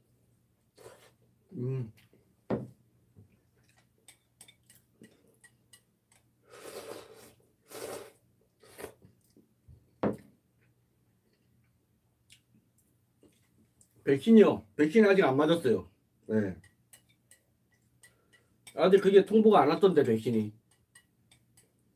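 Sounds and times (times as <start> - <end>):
slurping sips: 0.8 - 1.2, 6.5 - 9.0
chewing: 3.3 - 9.4.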